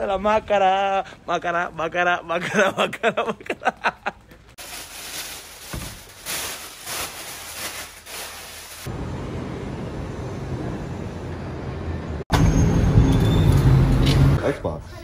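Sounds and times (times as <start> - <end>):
plastic bags rustling: 4.6 - 8.9.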